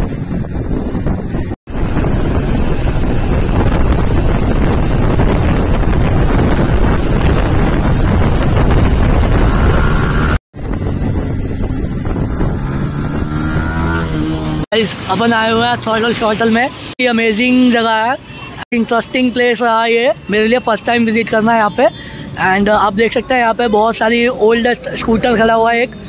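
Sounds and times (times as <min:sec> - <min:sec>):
motorcycle engine running: 0:00.0 - 0:14.6
wind buffeting microphone: 0:00.0 - 0:14.6.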